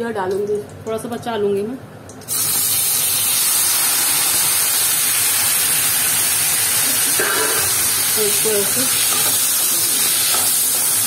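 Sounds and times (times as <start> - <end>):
tomatoes sizzling in hot oil: 2.3 - 11.0.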